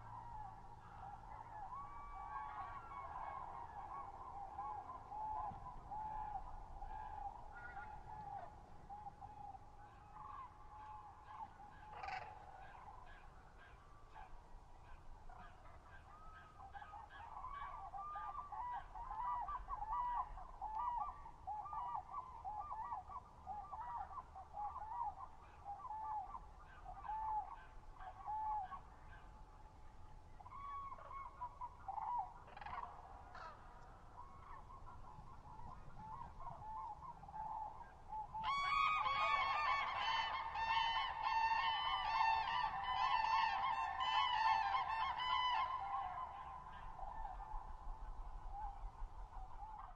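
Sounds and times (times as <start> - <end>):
cranes trumpeting calls: 10.1 - 13.8, 30.4 - 34.7, 36.1 - 47.6.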